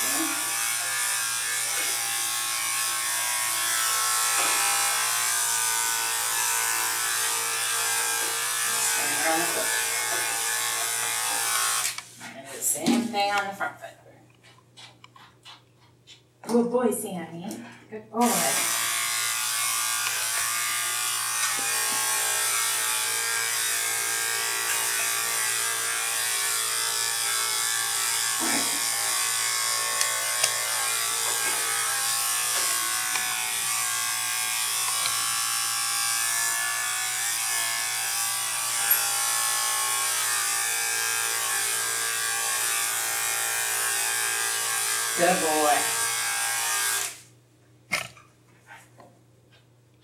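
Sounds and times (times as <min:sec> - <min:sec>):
electric clipper buzzing: 0:00.0 - 0:12.2, 0:18.2 - 0:47.4.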